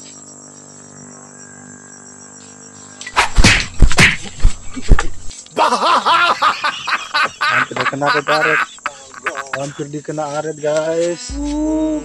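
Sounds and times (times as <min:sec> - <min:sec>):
insect drone: 0:00.0 - 0:12.0
pole thrashing through branches: 0:03.1 - 0:05.3.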